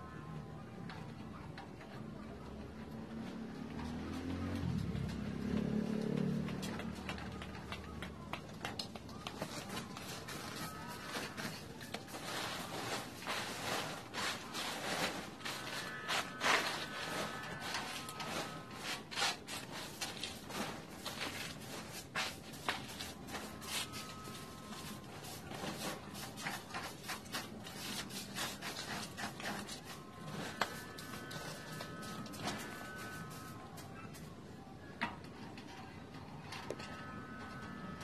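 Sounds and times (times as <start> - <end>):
dry leaves rustling: 8.9 - 33.6.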